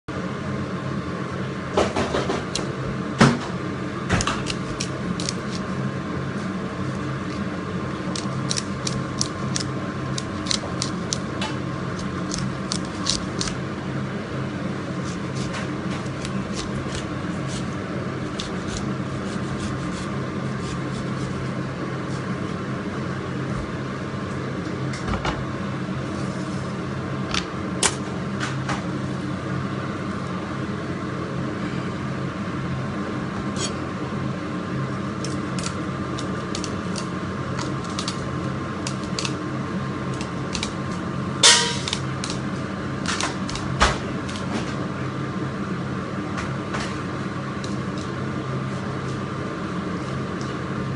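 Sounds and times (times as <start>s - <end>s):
kitchen machinery hum: 0.1s - 50.9s.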